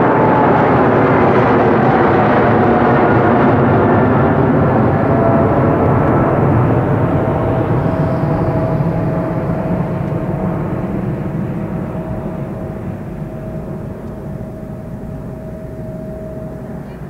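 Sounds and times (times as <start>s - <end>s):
jet engines roaring at takeoff: 0.0s - 17.0s.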